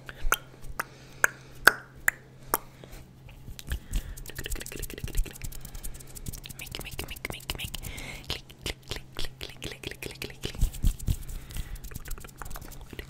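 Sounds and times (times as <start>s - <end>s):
faint low hum: 0.0s - 13.0s
wet mouth clicks and pops: 3.5s - 5.6s, 6.4s - 10.7s.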